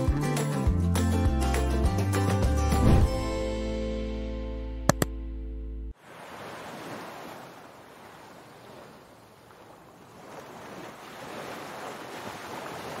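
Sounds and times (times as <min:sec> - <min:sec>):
ocean waves washing ashore: 0:06.0 - 0:13.0.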